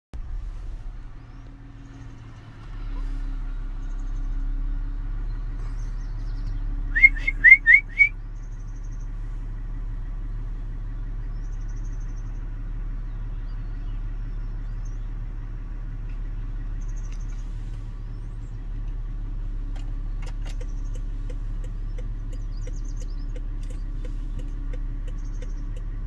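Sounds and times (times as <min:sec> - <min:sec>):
vehicle idling hum: 0:00.1 - 0:26.0
short rising whistled notes: 0:07.0 - 0:08.1.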